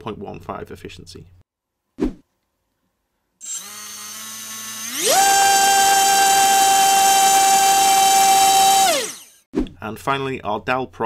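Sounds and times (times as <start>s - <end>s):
electric motor high whine: 3.4s - 9.4s.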